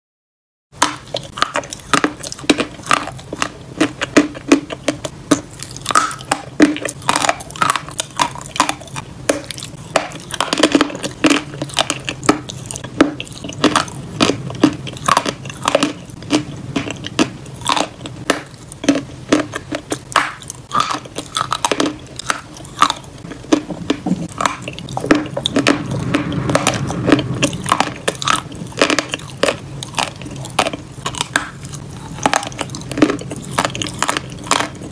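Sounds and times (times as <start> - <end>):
chalk crunching while chewed: 0.8 - 34.9.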